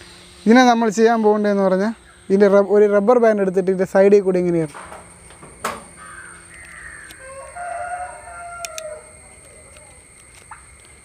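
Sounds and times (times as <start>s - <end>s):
rooster crowing: 5.9s - 10.1s.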